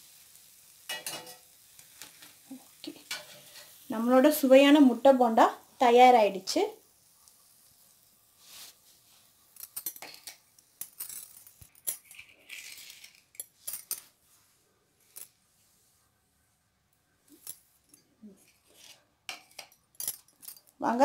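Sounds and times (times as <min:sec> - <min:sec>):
metal plate clinking on stone: 0:00.9 - 0:01.4.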